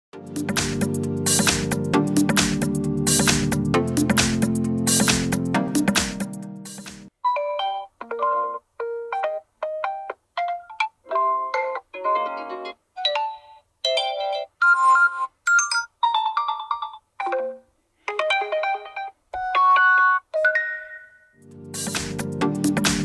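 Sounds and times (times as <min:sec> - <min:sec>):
short melodic phone chimes: 0:18.4 - 0:21.4.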